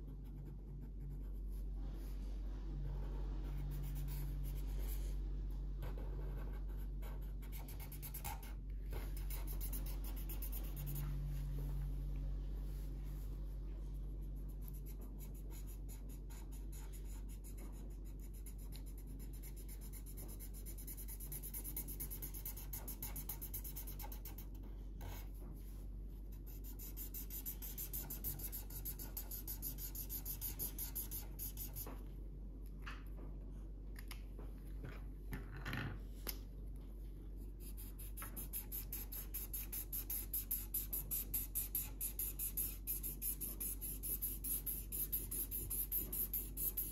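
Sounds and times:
felt-tip marker scratching on paper: 0:26.4 - 0:31.9, 0:37.6 - 0:46.9.

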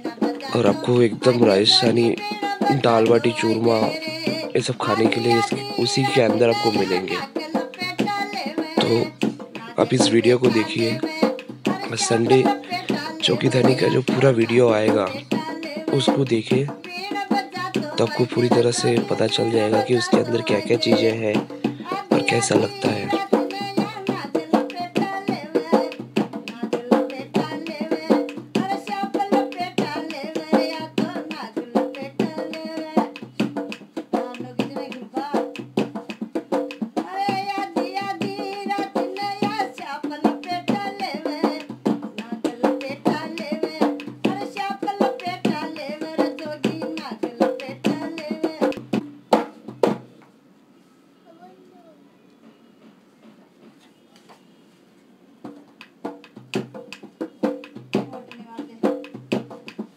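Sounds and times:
person singing folk song: 0:00.0 - 0:33.5, 0:34.1 - 0:35.6, 0:37.0 - 0:48.8
hand drum beat: 0:00.0 - 0:50.1, 0:55.4 - 0:59.9.

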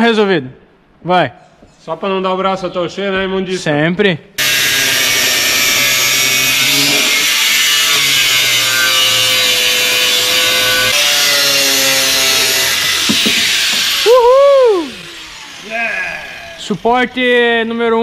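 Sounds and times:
angle grinder cutting steel: 0:04.4 - 0:17.4.

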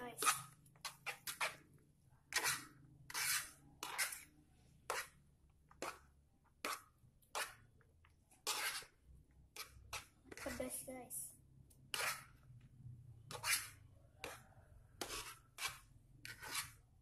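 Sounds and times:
metal fork scraping a plate: 0:02.3 - 0:04.3, 0:08.4 - 0:09.0, 0:11.9 - 0:12.3, 0:13.3 - 0:14.4, 0:15.0 - 0:16.8.

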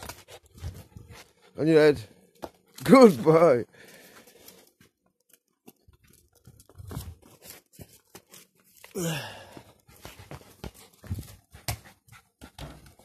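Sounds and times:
ball on paving: 0:09.6 - 0:13.0
dog paws tapping on paving: 0:09.7 - 0:13.0.

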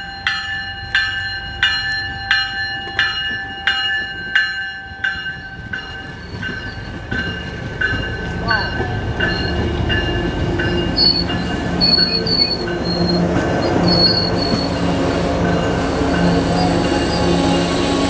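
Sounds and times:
train wheels squealing: 0:06.0 - 0:07.4, 0:08.4 - 0:18.0.

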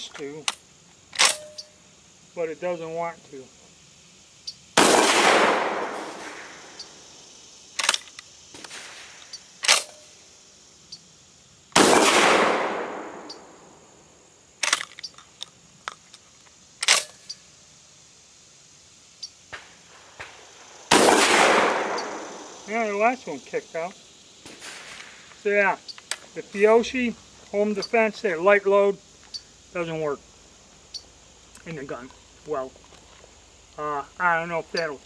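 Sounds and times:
shotgun action metallic clacks: 0:01.2 - 0:01.7, 0:09.6 - 0:10.0, 0:16.8 - 0:17.2
shotgun shots echoing: 0:04.8 - 0:06.7, 0:11.8 - 0:13.6, 0:20.2 - 0:22.6.

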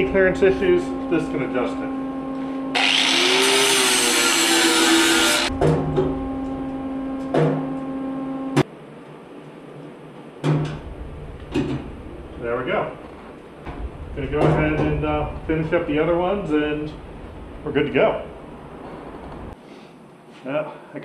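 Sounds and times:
angle grinder grinding steel: 0:02.7 - 0:05.5.

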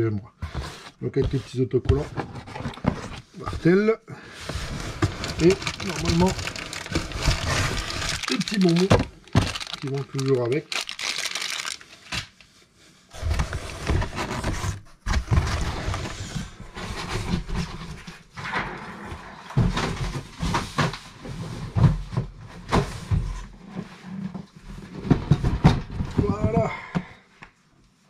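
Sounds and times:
box knocks and bumps: 0:01.2 - 0:03.8, 0:04.8 - 0:10.0
packaging rustling: 0:04.6 - 0:12.4.

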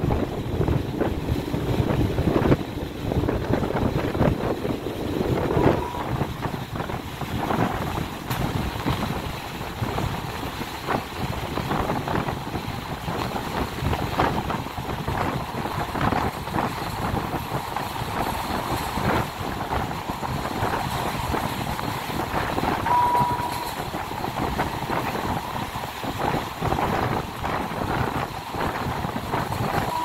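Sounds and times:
train rumbling and clattering: 0:00.0 - 0:30.0
short high-pitched tone: 0:05.5 - 0:06.3, 0:22.9 - 0:23.8.

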